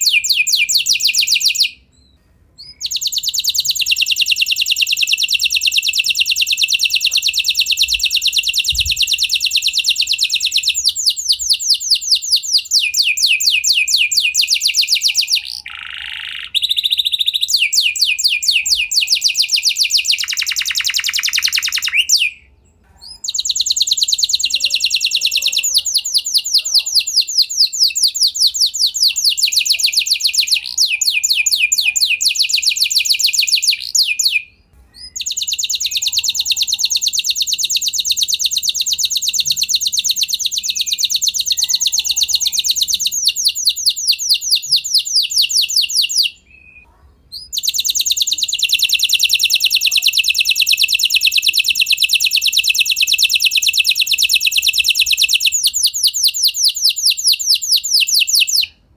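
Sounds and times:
canary singing trills: 0:00.0 - 0:58.8.

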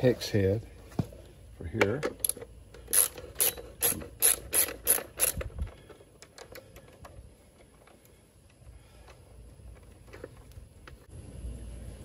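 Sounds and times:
hand ratchet clicking: 0:02.2 - 0:07.0.

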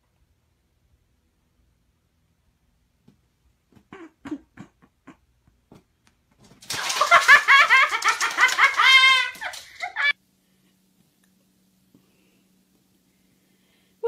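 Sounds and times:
person laughing loudly: 0:06.7 - 0:10.1.

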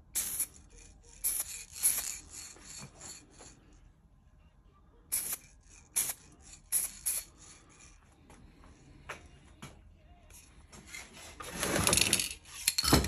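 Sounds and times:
spray paint can hissing: 0:00.1 - 0:03.5, 0:05.1 - 0:08.0.

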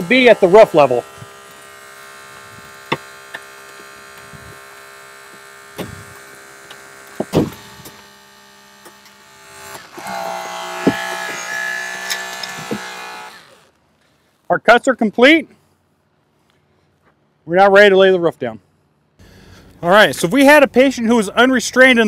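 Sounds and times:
hydraulic cutter motor hum: 0:00.0 - 0:13.8
tool whining under load: 0:00.0 - 0:14.2.

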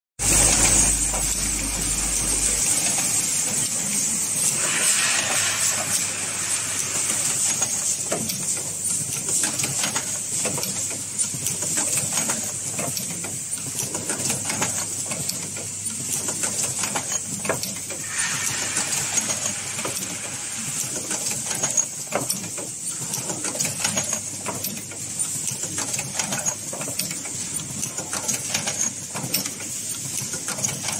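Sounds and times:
machinery high hiss: 0:00.3 - 0:09.0, 0:17.7 - 0:22.7.

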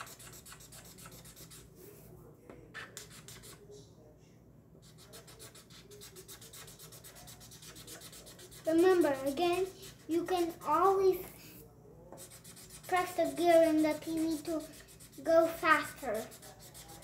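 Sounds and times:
marker scribbling on paper: 0:00.0 - 0:01.7, 0:02.8 - 0:03.6, 0:04.8 - 0:11.0, 0:12.2 - 0:17.0.

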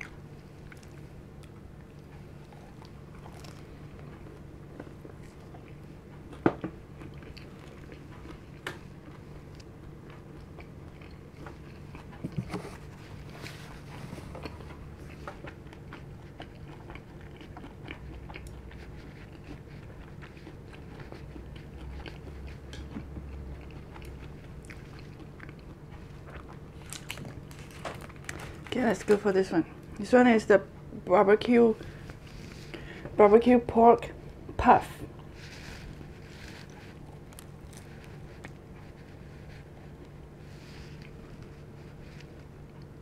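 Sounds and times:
person chewing food: 0:00.0 - 0:28.7, 0:31.8 - 0:33.2, 0:34.2 - 0:43.0
steady low hum: 0:00.0 - 0:43.0.

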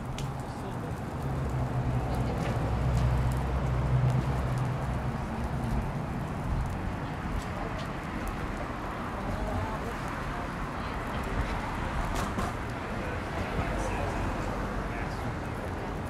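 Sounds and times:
faint light ticks: 0:00.1 - 0:00.4.

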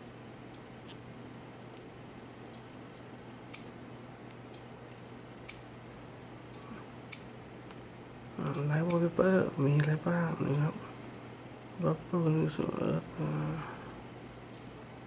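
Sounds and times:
faint steady hum: 0:00.0 - 0:15.0.

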